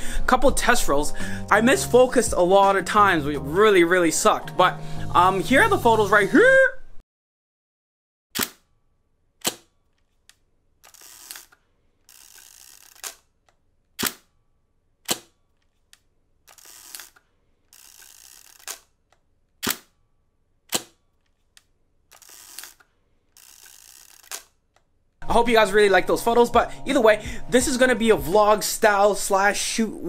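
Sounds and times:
camera shutter clicks: 0:08.4 - 0:08.6
film winding ratchet: 0:10.8 - 0:13.3, 0:16.4 - 0:19.0, 0:22.1 - 0:24.6.

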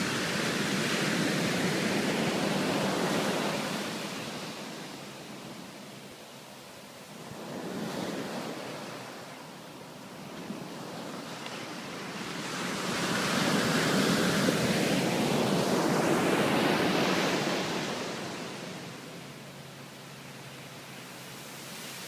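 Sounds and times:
ocean wave breaking on sand: 0:00.0 - 0:05.8, 0:07.0 - 0:19.4, 0:20.0 - 0:22.0.

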